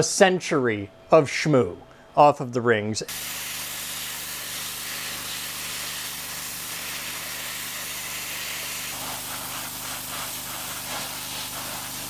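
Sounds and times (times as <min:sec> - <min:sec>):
steady low hum: 0:00.0 - 0:11.8
pressure washer spray hiss: 0:03.1 - 0:12.0.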